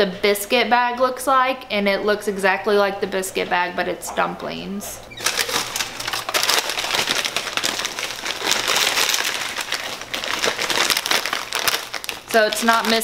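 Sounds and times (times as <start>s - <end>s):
plastic bags crinkling: 5.1s - 13.0s.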